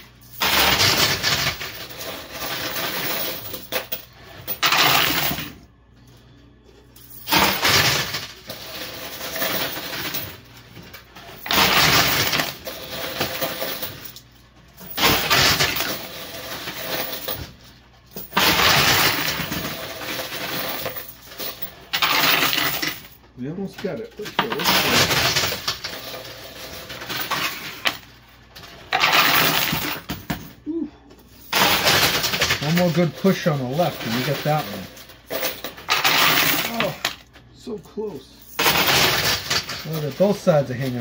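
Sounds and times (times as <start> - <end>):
coins clattering in a machine: 0.0 - 5.6, 7.0 - 30.5, 31.3 - 37.2, 38.4 - 41.0.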